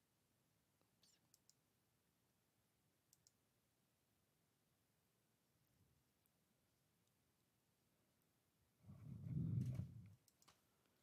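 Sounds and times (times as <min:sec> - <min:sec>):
computer mouse clicks: 0:01.0 - 0:01.6, 0:03.1 - 0:03.4, 0:10.2 - 0:10.6.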